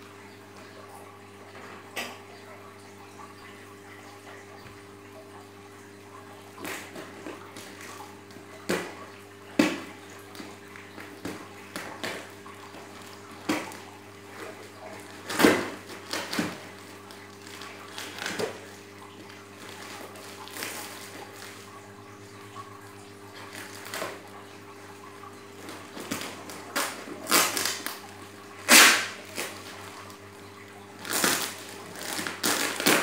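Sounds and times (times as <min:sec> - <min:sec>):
knife tearing plastic wrap: 0:15.0 - 0:18.7, 0:26.0 - 0:30.2, 0:31.0 - 0:33.0.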